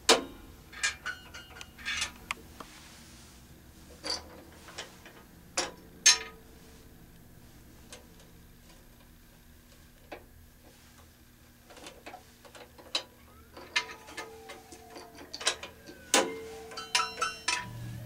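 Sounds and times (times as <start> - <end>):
metallic ringing: 0.2 - 2.1, 15.0 - 18.0.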